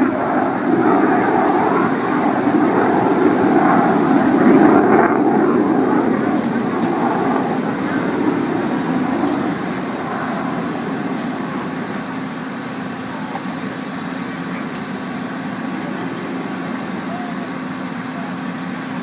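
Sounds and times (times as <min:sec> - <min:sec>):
engine humming: 0:00.0 - 0:19.0.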